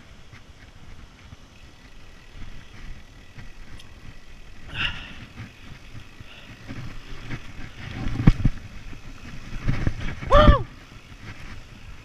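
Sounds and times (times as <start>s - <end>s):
bike rattling over bumps: 0.0s - 12.0s
bike tyres rumbling on dirt: 0.0s - 12.0s
wind on microphone: 4.7s - 12.0s.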